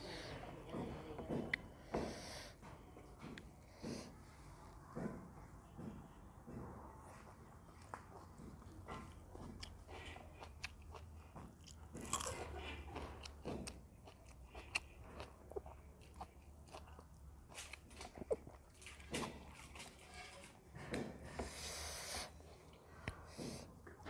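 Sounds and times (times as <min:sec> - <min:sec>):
person chewing food: 0:07.8 - 0:19.9
food crunching: 0:09.3 - 0:19.9.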